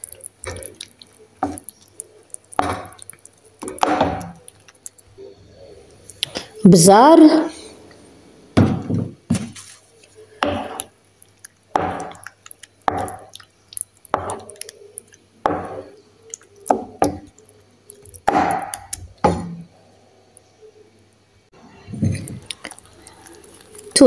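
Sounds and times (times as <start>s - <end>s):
spoon stirring thick sauce in pan: 0.0s - 5.0s, 9.9s - 19.7s.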